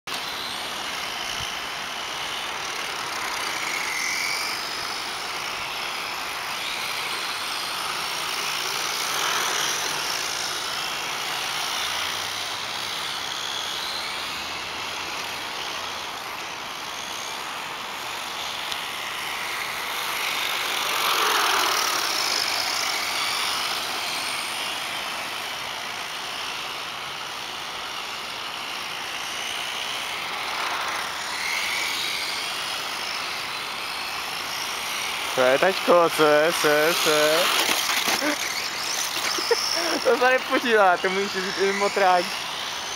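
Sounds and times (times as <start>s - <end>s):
rc car motor whine: 0.1s - 42.9s
steady hiss: 0.1s - 42.9s.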